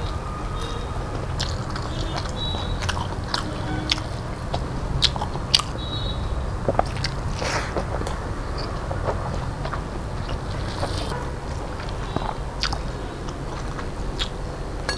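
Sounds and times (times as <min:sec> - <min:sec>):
man chewing: 0:01.3 - 0:04.0, 0:06.7 - 0:14.4
steady low hum: 0:02.8 - 0:06.8.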